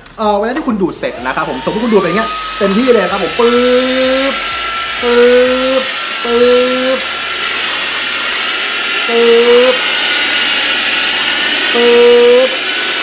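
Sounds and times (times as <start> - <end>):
stick vacuum high whine: 0.8 - 13.0
short low rising hum: 1.1 - 12.5.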